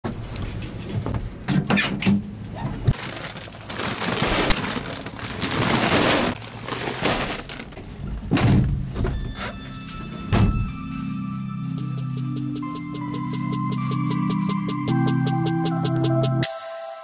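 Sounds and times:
rustling and clattering: 2.6 - 10.7
background music: 9.2 - 17.0.

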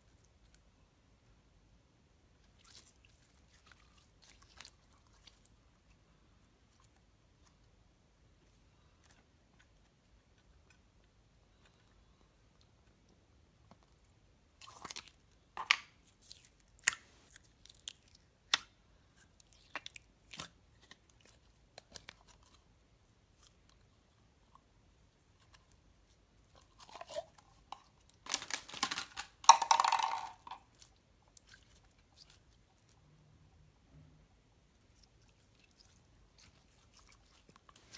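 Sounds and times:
slime squelching: 2.4 - 11.8, 12.4 - 22.6, 30.7 - 33.0, 34.7 - 37.9
plastic containers clicking: 28.3 - 30.6.

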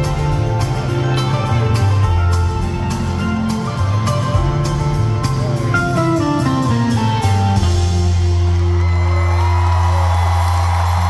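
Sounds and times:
live band with guitar: 0.0 - 11.0
crowd cheering: 8.0 - 11.0.

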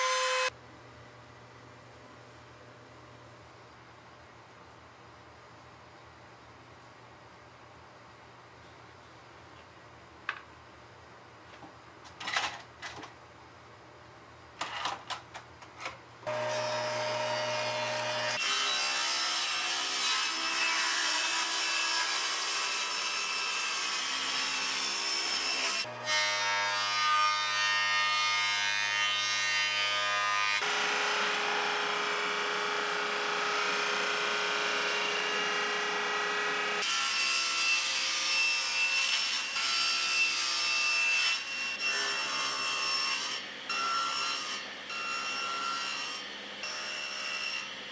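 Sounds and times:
table saw cutting wood: 0.0 - 0.5, 16.3 - 47.9
knocks and clatters of handling wood: 11.5 - 13.2.

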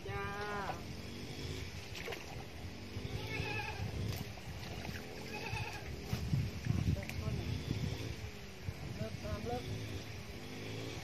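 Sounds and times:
wind rumble on microphone: 1.6 - 10.4
light water splashing: 1.8 - 2.6, 4.0 - 7.2.

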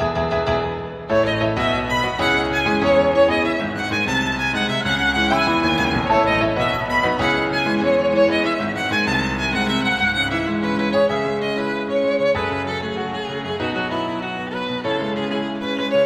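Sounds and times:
violin melody: 1.0 - 16.0
backing accompaniment: 1.2 - 11.1.

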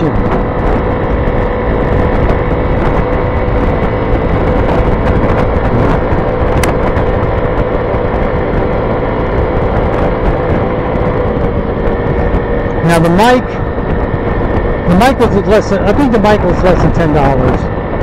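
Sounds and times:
scooter engine running: 0.0 - 18.0
wind rumble: 0.0 - 18.0.

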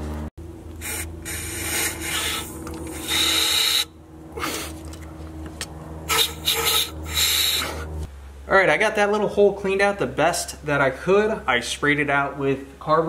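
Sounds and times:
steady low hum: 0.0 - 13.0
aerosol spray hissing: 0.8 - 3.9, 6.1 - 7.6.

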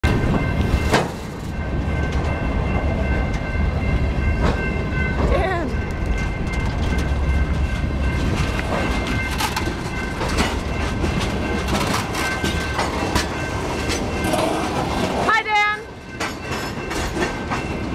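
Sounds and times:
train cars rumbling past: 0.0 - 17.9
wheels clicking over rail joints: 4.1 - 17.9.

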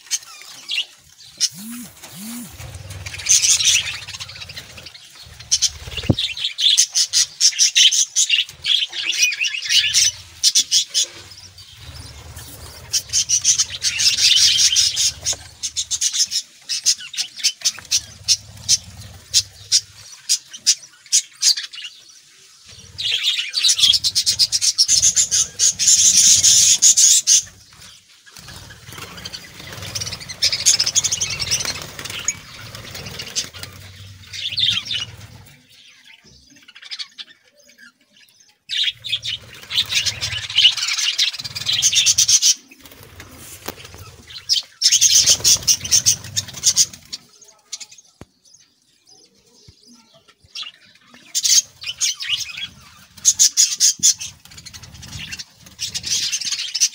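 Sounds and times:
budgerigars chirping: 0.2 - 21.7, 38.7 - 43.1.

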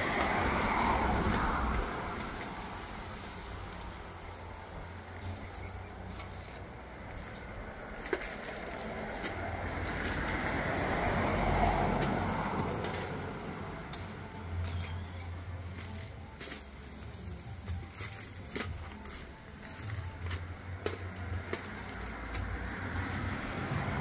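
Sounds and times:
vehicle passing by: 0.0 - 16.4, 19.3 - 24.0.

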